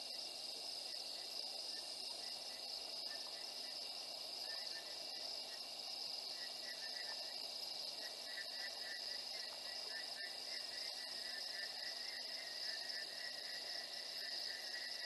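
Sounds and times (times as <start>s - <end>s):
crickets trilling: 0.0s - 15.0s
faint steady hiss: 0.0s - 15.0s
insects chirping: 0.0s - 15.0s.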